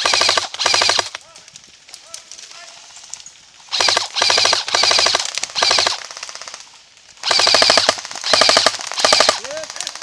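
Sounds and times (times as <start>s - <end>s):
airsoft rifle full-auto bursts: 0.0s - 1.2s, 3.7s - 10.0s.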